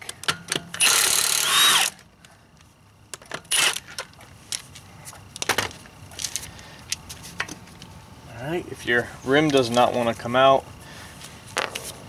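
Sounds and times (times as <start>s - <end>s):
impact wrench spinning: 0.7s - 2.0s.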